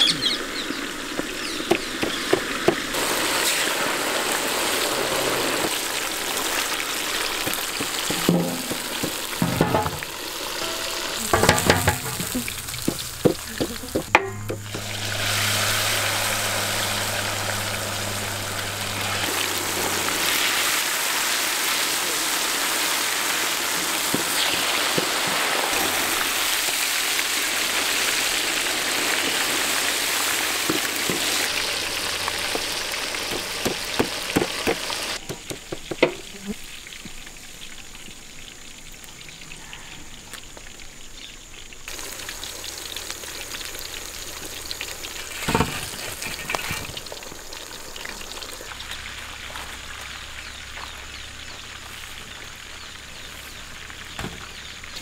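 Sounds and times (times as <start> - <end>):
chicken deep-frying in oil: 0.0 - 55.0
knock: 8.1 - 10.0, 11.4 - 14.6.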